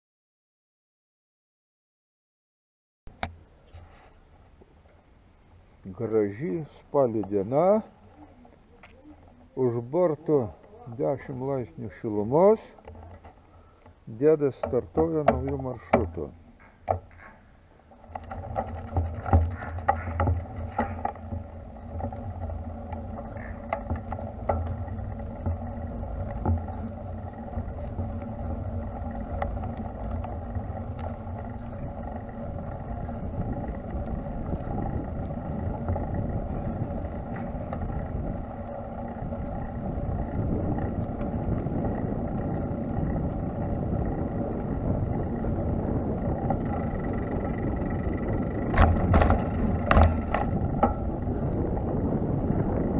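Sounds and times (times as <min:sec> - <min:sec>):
small vehicle rolling drone: 0:16.9 - 0:52.9
wind on microphone: 0:18.0 - 0:52.9.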